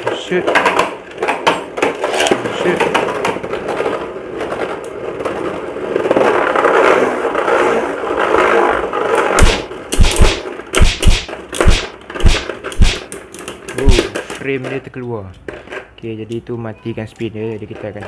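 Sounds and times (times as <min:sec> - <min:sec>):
spinning tops whirring in stadium: 0:09.4 - 0:13.0
spinning tops clashing: 0:09.4 - 0:13.1.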